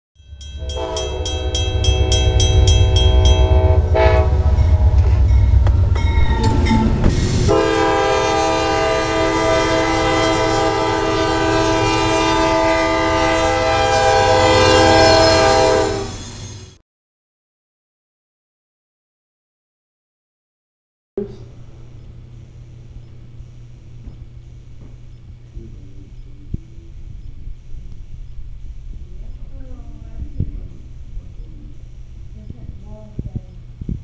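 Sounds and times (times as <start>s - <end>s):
crossing bell ringing: 0.2s - 7.1s
locomotive rumble: 0.2s - 16.8s, 21.2s - 34.0s
train air horn blast: 0.6s - 5.6s, 7.4s - 16.2s.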